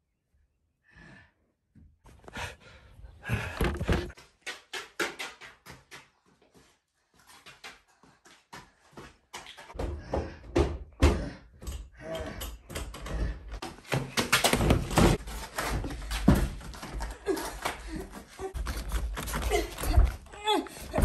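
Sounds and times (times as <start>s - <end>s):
knocks and thumps: 3.2s - 4.2s.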